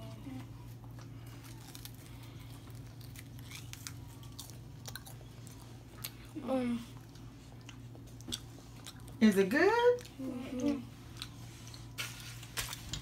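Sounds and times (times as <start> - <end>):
steady low hum: 0.0 - 13.0
tortilla chips crunching: 0.7 - 6.3, 11.0 - 13.0.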